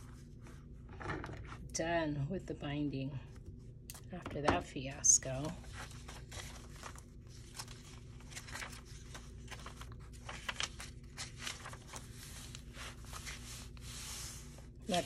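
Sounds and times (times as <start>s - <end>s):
steady low hum: 0.0s - 15.0s
pages scraping and tapping: 5.4s - 15.0s
paper rustling and crinkling: 5.4s - 15.0s.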